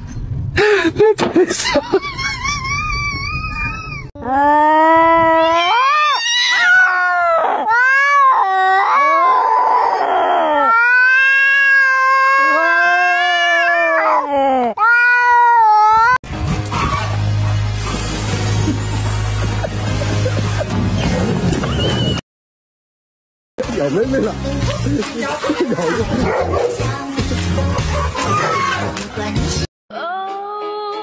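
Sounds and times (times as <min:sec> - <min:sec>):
cat meowing loudly: 0:05.4 - 0:09.9, 0:10.6 - 0:14.2, 0:14.8 - 0:16.2
music: 0:16.3 - 0:21.6, 0:23.6 - 0:31.0.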